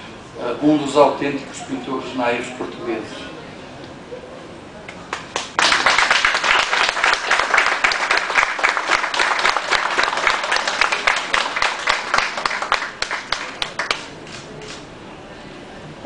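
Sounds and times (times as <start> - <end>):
audience applauding: 5.1 - 14.5.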